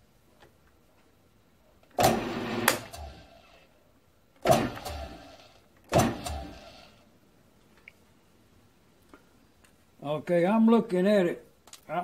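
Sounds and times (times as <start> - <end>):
mill spindle spinning up and down: 2.0 - 3.6.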